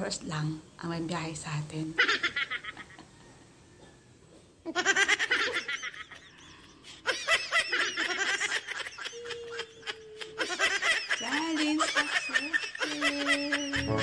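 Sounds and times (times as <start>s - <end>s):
woman laughing: 4.7s - 14.0s.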